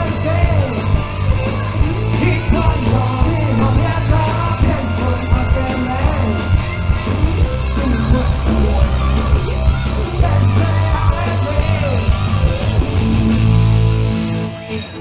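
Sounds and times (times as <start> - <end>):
shouted vocals: 0.0 - 13.0
punk rock band playing live: 0.0 - 15.0.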